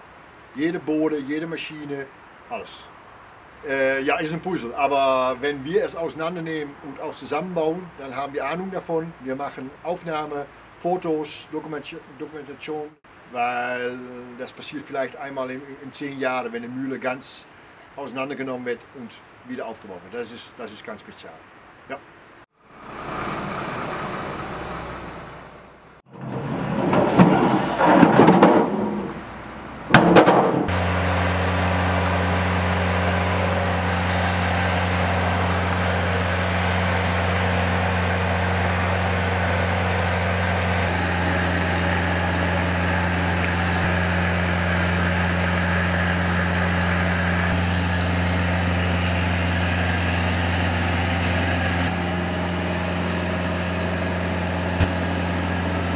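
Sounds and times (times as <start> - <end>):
engine humming: 22.7 - 55.9.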